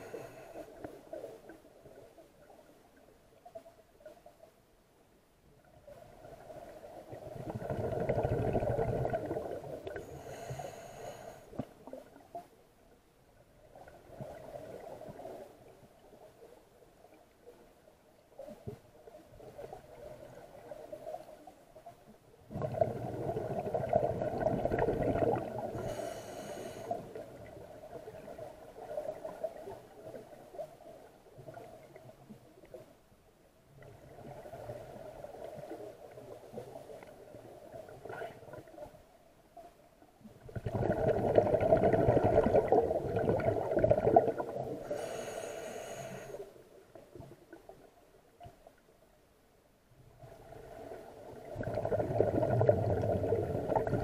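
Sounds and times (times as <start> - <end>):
exhaled bubbles rushing: 7.2 - 10.0, 22.5 - 25.8, 40.5 - 44.8, 51.4 - 54.0
hissing regulator inhalations: 10.0 - 11.6, 25.8 - 27.0, 44.8 - 46.4.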